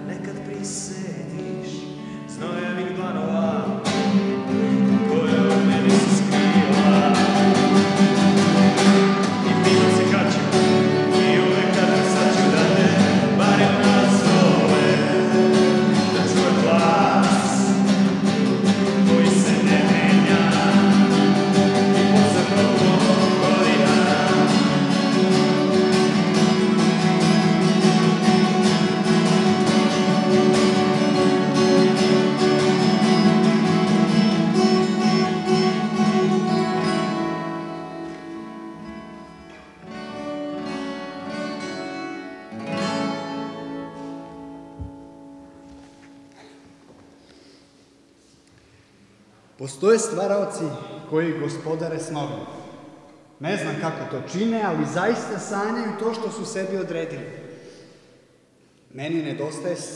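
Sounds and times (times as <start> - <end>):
acoustic guitars playing: 0.0 - 59.9.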